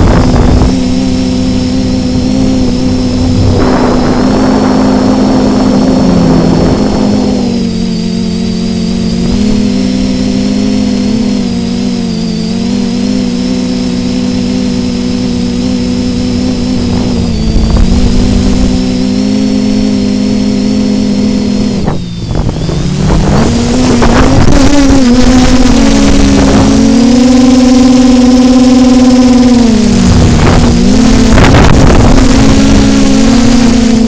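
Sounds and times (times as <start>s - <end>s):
wind buffeting microphone: 0.0s - 7.6s, 29.9s - 33.2s
drone motors humming: 0.0s - 34.0s.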